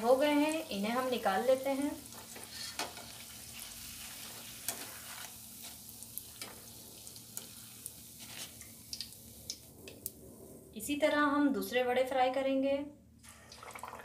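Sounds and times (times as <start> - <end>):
hot oil sizzling: 0.0 - 10.2.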